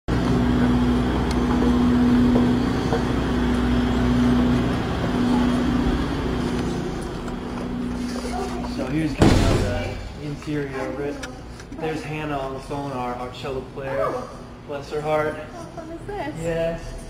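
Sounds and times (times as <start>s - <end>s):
bus diesel engines idling: 0.1s - 10.2s.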